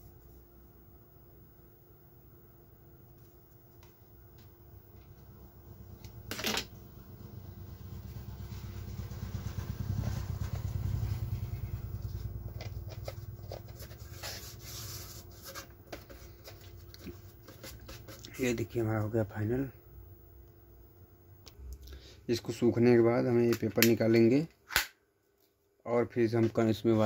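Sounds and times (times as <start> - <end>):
hands rubbing speaker cone: 9.4 - 18.6.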